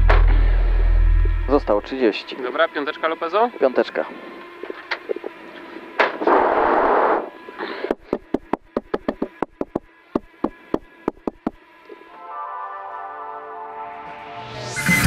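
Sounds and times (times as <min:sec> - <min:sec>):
sharp irregular pops: 0:07.8 - 0:11.6.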